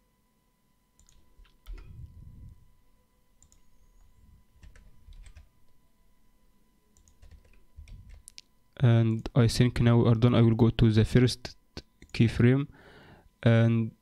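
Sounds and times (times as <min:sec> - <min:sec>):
keyboard keystrokes: 0:07.0 - 0:08.4.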